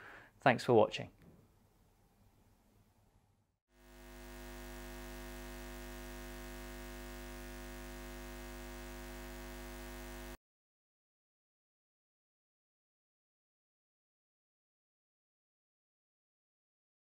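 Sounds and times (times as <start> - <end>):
electric hum drone: 3.8 - 10.4.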